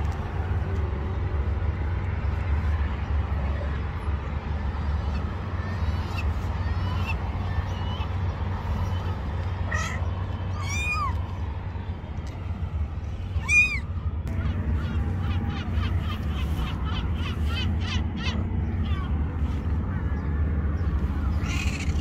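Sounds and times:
kittens meowing: 0:08.8 - 0:11.3, 0:13.4 - 0:13.9, 0:21.3 - 0:22.0.

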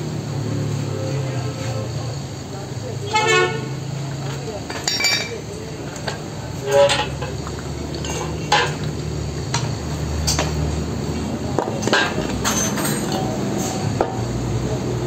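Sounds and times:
metal parts clinking and clanking: 0:04.7 - 0:08.9, 0:11.8 - 0:13.8.

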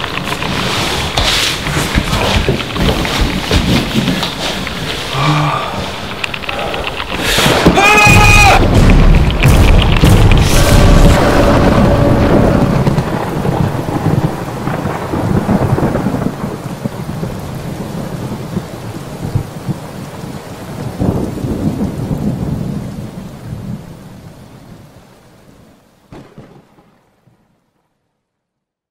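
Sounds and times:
steady hiss: 0:00.0 - 0:12.0
deep rumble: 0:00.0 - 0:17.4.

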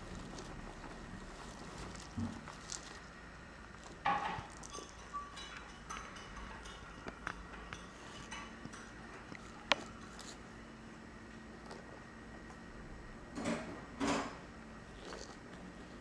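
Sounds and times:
kittens rustling plastic ribbon: 0:00.0 - 0:03.2.

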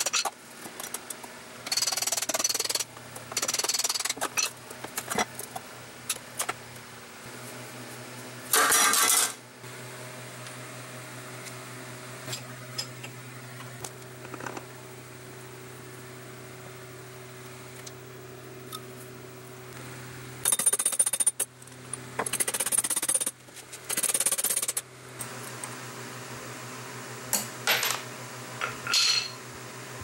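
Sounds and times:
fan humming: 0:00.0 - 0:30.0
rapid metallic clicking: 0:00.9 - 0:04.4.

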